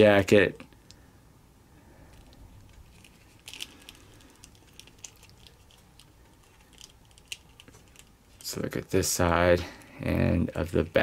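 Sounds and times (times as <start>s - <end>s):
plastic figure clicking and rubbing: 2.1s - 8.5s.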